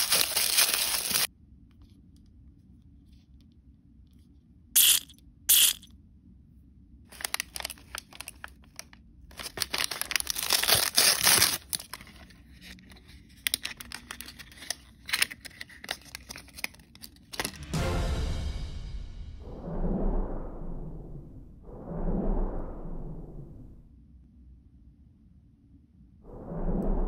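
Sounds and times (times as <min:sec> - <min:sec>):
plastic bag crinkling and tearing: 0:00.0 - 0:01.3, 0:07.1 - 0:12.8, 0:13.4 - 0:17.5
deep drum-like music hit: 0:17.5 - 0:22.4.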